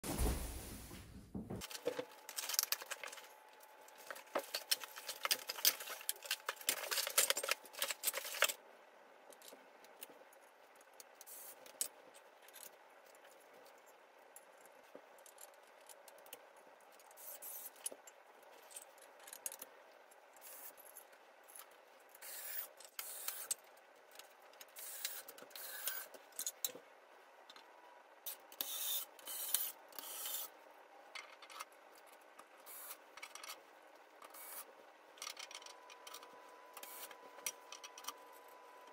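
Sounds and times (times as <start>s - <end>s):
metal parts and screws clicking: 1.6s - 3.3s, 3.9s - 8.6s, 10.7s - 19.7s, 20.3s - 26.8s, 28.3s - 30.5s, 31.1s - 33.6s, 34.2s - 38.2s.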